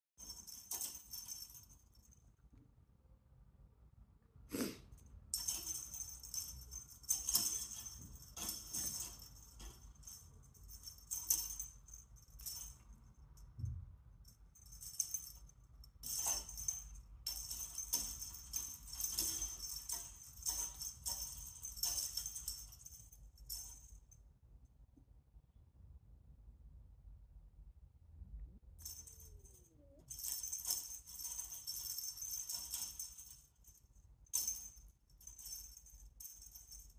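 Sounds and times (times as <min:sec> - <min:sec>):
cat toy jingling: 0:00.2 - 0:02.2, 0:05.3 - 0:13.5, 0:14.3 - 0:24.0, 0:28.8 - 0:36.9.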